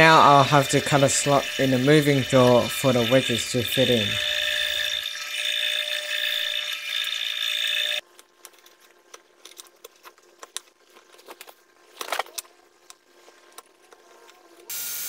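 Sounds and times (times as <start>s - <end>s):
drill press drilling wood: 0.0s - 8.0s.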